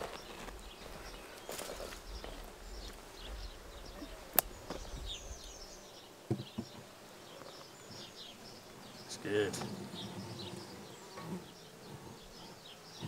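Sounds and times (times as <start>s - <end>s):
small birds chirping: 0.0s - 13.0s
wind rumble on microphone: 0.5s - 6.0s
wooden cover knocking on wood: 6.3s - 6.8s.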